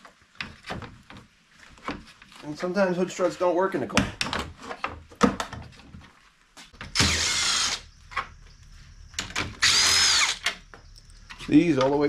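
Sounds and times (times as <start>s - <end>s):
cordless drill whining: 6.9s - 7.9s, 9.3s - 10.6s.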